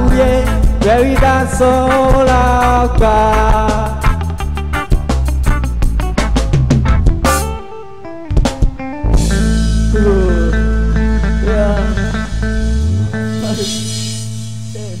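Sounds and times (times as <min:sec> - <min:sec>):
drum beat: 0:00.0 - 0:07.6
electric guitar bending lead notes: 0:00.0 - 0:15.0
live rock band playing: 0:00.0 - 0:15.0.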